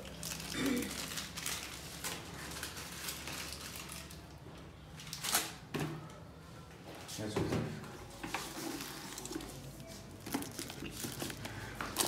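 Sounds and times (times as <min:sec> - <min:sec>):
plastic packets crinkling: 0:00.0 - 0:04.4, 0:08.6 - 0:12.0.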